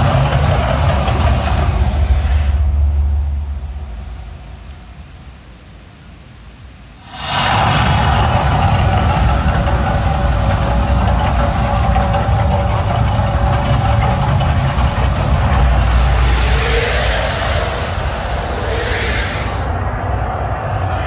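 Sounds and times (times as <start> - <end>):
deep steady rumble: 1.0 - 21.0
gas fire jets rushing: 7.0 - 20.3.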